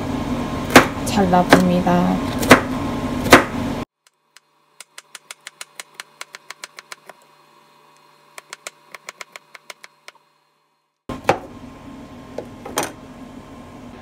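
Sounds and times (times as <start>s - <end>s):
knife chopping on plastic board: 0.7s - 1.7s, 2.4s - 3.6s.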